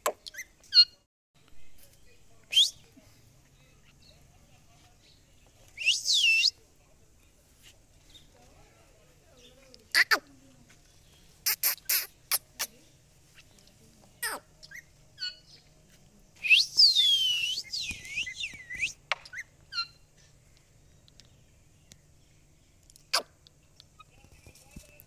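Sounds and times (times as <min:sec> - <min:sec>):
parakeet chirps: 0:11.4 - 0:12.5.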